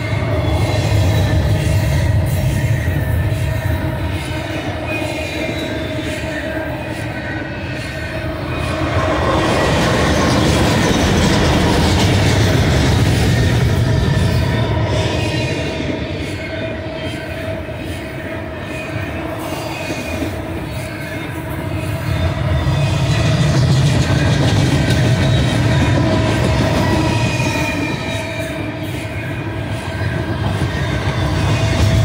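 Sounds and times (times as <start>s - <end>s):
high wheel squeal: 0.0s - 32.0s
steel wheels rumbling on rail: 0.0s - 32.0s.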